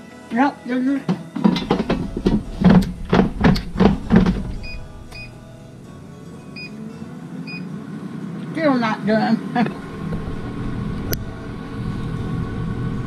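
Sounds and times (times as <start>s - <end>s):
air fryer basket rattling: 1.0s - 5.2s
fan motor running: 1.0s - 13.0s
short beeps: 4.6s - 5.4s, 6.5s - 6.8s, 7.5s - 7.7s.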